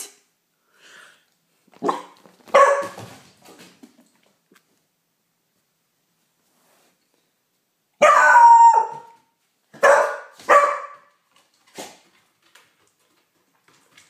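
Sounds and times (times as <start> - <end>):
puppy short sharp barks: 1.8 - 3.1, 9.8 - 11.1
puppy howling bark: 8.0 - 9.2.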